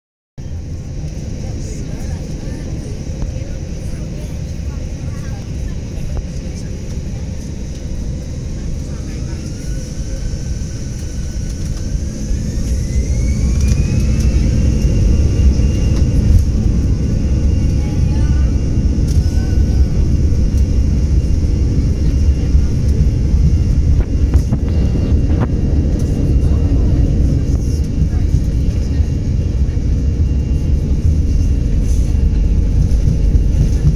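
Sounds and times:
jet engines roaring: 0:00.4 - 0:33.9.

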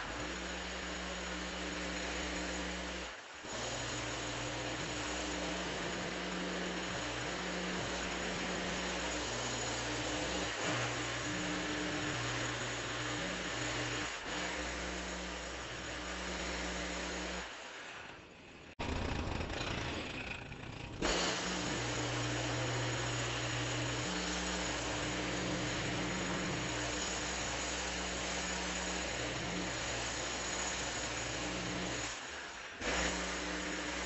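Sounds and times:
engine running: 0:18.8 - 0:22.8.

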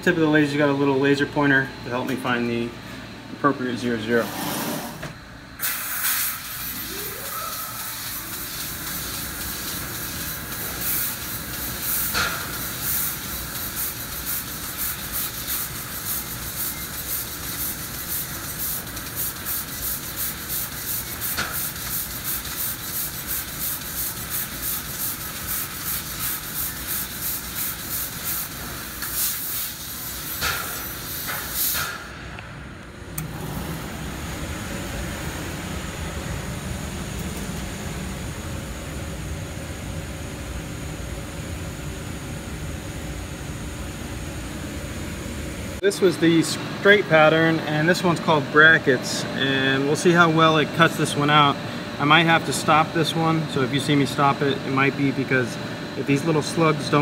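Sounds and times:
laser cutter gas hiss: 0:05.6 - 0:32.2.

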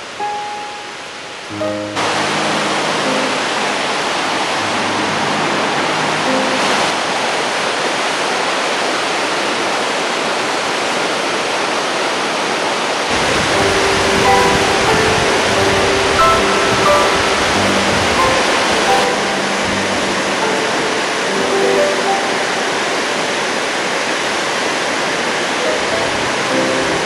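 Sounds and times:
soft background music: 0:00.0 - 0:07.0, 0:13.1 - 0:24.0, 0:25.6 - 0:27.0
water rushing over waterfall: 0:00.0 - 0:27.0.

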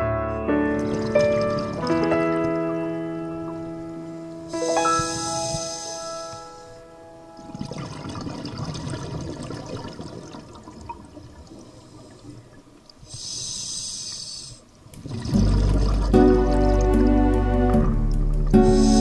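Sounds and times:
music: 0:00.0 - 0:07.7, 0:15.2 - 0:19.0
exhaled air bubbles: 0:00.7 - 0:02.8, 0:07.4 - 0:13.6, 0:14.2 - 0:19.0
hissing breath through regulator: 0:04.0 - 0:06.9, 0:11.6 - 0:14.8, 0:18.6 - 0:19.0.

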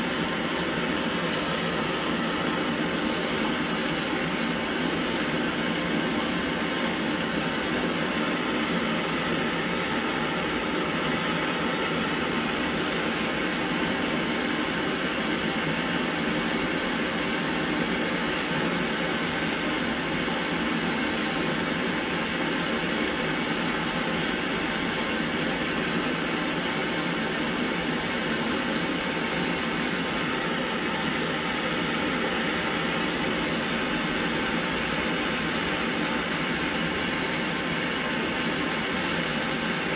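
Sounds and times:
gas torch flame hissing: 0:00.0 - 0:20.8.

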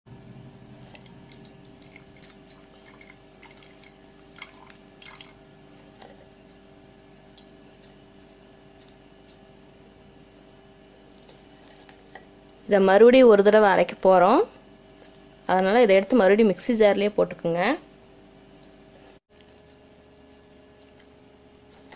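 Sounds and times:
faint steady hum: 0:00.1 - 0:21.9
liquid dripping through strainer: 0:00.9 - 0:05.4
wet squishing: 0:00.9 - 0:05.4.

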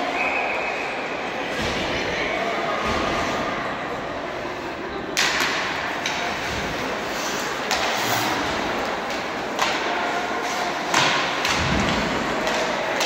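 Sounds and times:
hockey sticks and puck knocking: 0:05.1 - 0:13.0
skates hissing on ice: 0:06.9 - 0:08.8.

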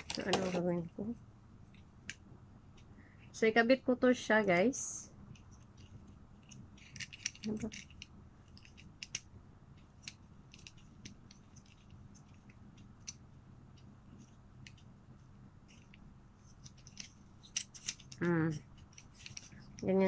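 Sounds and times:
faint low steady hum: 0:00.0 - 0:20.0
small plastic clicks: 0:05.4 - 0:14.9.

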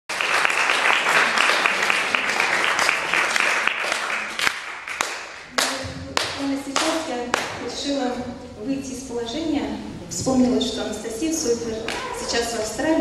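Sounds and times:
audience applauding: 0:00.1 - 0:05.8.

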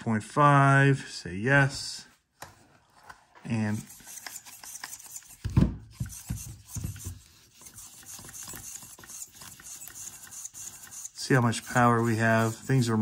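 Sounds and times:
steering servo whirring and grinding: 0:03.8 - 0:12.7.

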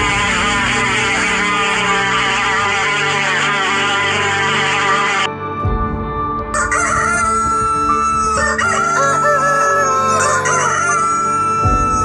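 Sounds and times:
background music: 0:00.0 - 0:12.0
roosters crowing: 0:06.6 - 0:11.6.

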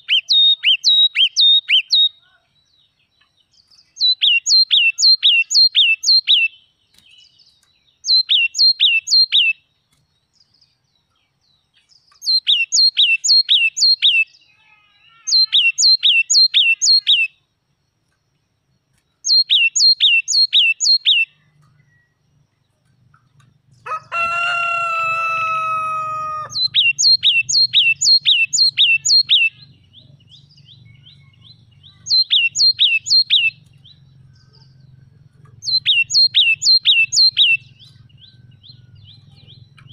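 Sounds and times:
rooster crowing: 0:23.8 - 0:26.9, 0:38.1 - 0:39.6
low hum: 0:26.5 - 0:39.9.

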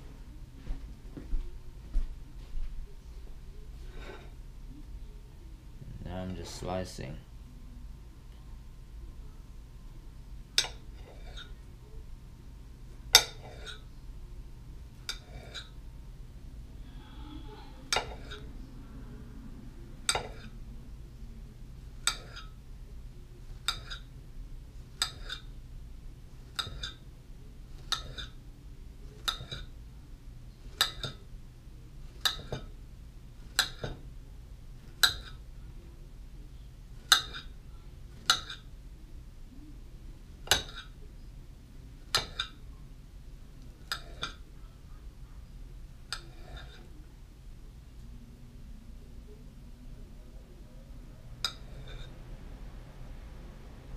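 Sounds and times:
knife clinking against plate: 0:13.2 - 0:13.8, 0:22.1 - 0:22.6, 0:23.6 - 0:24.1, 0:26.5 - 0:27.0, 0:27.8 - 0:28.4, 0:29.2 - 0:29.7, 0:37.1 - 0:37.5, 0:43.8 - 0:44.4.

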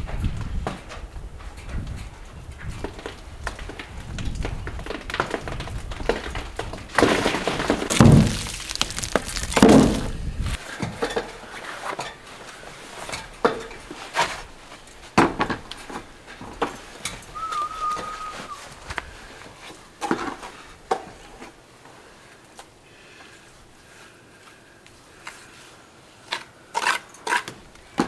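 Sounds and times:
bricks and rubble tumbling down: 0:02.8 - 0:11.4.

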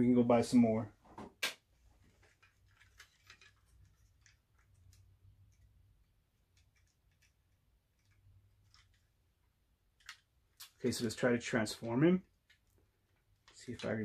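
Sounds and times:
plastic toy clicks and rattles: 0:02.3 - 0:05.7, 0:10.0 - 0:10.9.

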